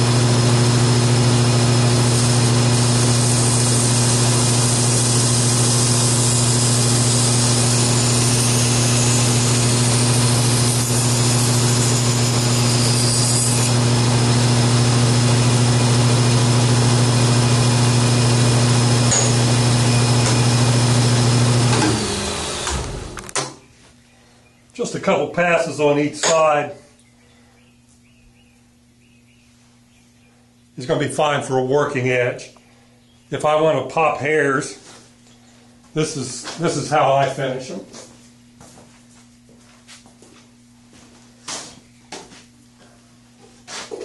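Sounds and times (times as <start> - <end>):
belt grinder motor hum: 0.0 - 23.4.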